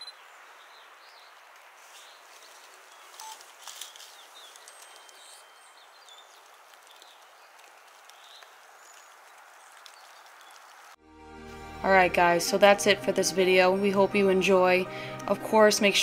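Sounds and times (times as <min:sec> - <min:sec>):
faint bird chirps: 0:00.0 - 0:01.3.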